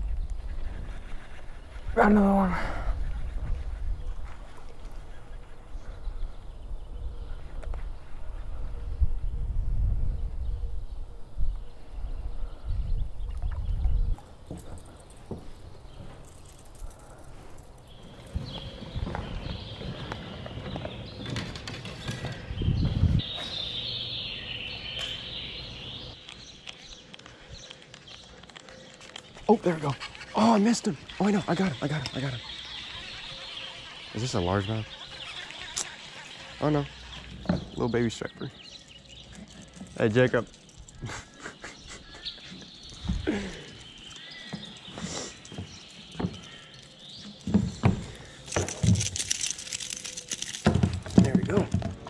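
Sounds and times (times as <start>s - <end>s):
birds chirping: 0.0s - 52.0s
flip-flop footsteps on a dock: 44.4s - 49.1s, 50.6s - 52.0s.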